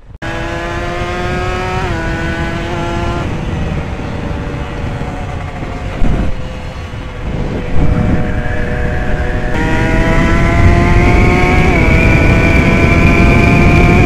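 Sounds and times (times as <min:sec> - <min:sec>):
wind rush on microphone: 0:00.0 - 0:14.0
motorcycle engine high pitch: 0:00.2 - 0:14.0.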